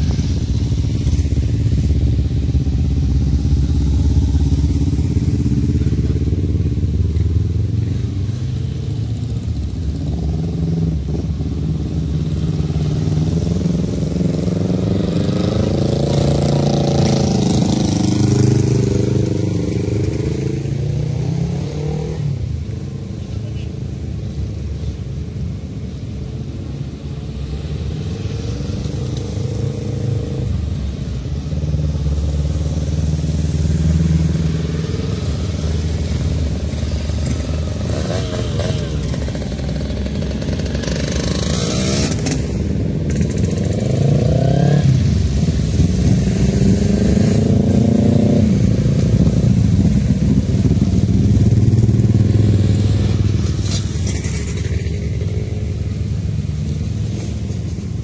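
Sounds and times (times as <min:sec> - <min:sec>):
small motorcycles revving past: 0:31.9 - 0:55.7.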